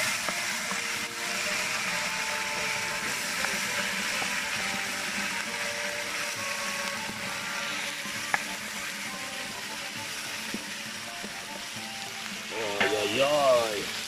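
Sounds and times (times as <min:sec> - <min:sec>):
meat sizzling in hot lard: 0:00.0 - 0:14.0.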